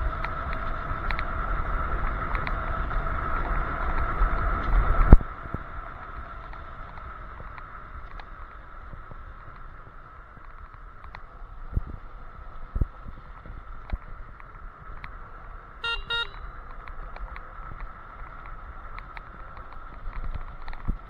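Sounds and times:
electric scooter whine: 0.0 - 21.0
road and wind rumble: 0.0 - 21.0
short electronic beeps: 15.8 - 16.5.

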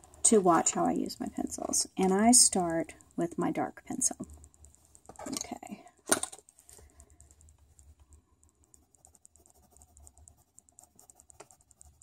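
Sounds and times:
coloured pencil scratching on paper: 8.6 - 12.0.

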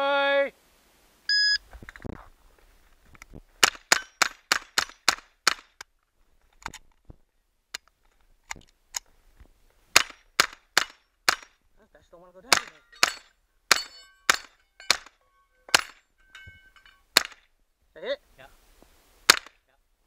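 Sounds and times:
gunshots hitting steel targets: 3.6 - 5.7, 10.0 - 11.6, 12.4 - 17.4, 19.3 - 19.6.

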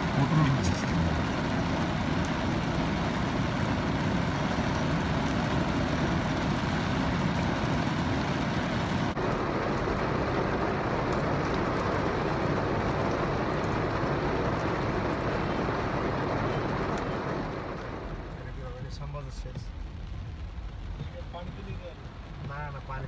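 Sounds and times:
engine and road rumble: 0.0 - 23.0
heavy rain on vehicle: 0.0 - 23.0.

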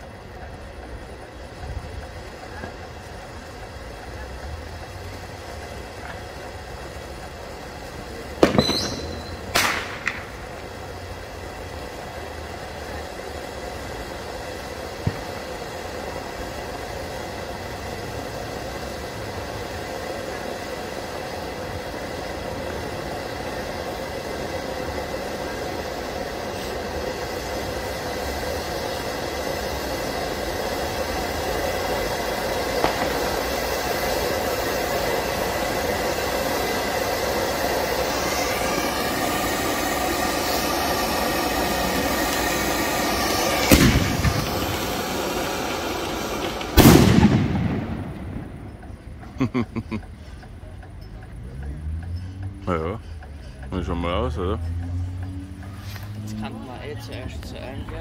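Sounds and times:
firework cracks: 0.0 - 50.2
firework fountain hissing: 0.0 - 58.0
small pop: 8.5 - 10.3
brief whistle: 8.6 - 9.5.

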